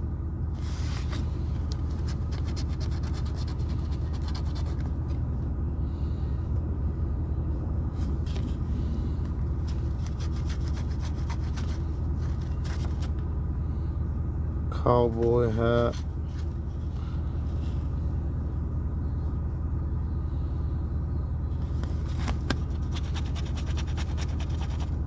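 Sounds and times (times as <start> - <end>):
low rumble: 0.0 - 23.2
coin scratching lottery ticket: 2.0 - 4.9, 9.9 - 11.7, 22.7 - 25.0.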